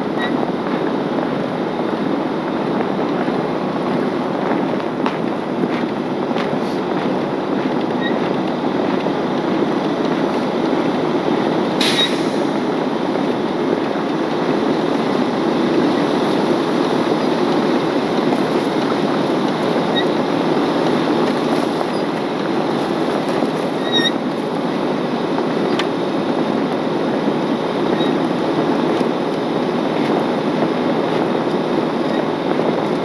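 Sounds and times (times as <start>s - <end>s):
heavy truck engine: 0.0s - 33.0s
sharp metallic clank: 11.8s - 12.6s.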